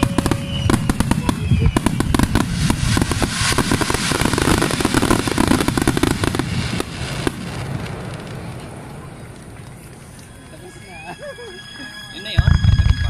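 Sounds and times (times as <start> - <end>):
fireworks bursting and crackling: 0.0 - 13.0.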